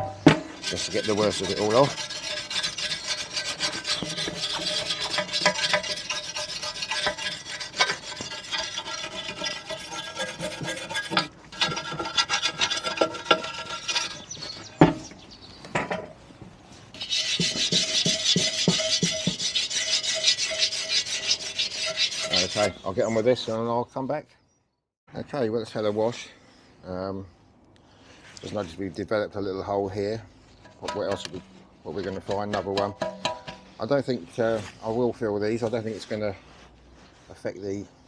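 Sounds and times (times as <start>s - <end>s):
brush scrubbing rusty steel: 0.0s - 15.2s, 16.7s - 23.5s, 30.5s - 37.6s.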